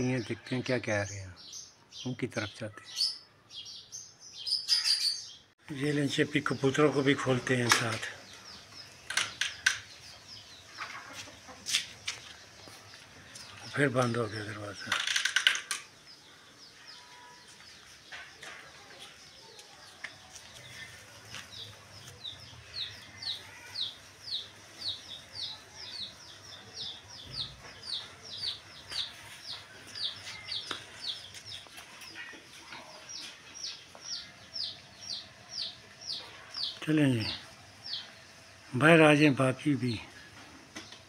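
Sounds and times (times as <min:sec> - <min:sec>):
chicks peeping: 0:21.5 - 0:36.8.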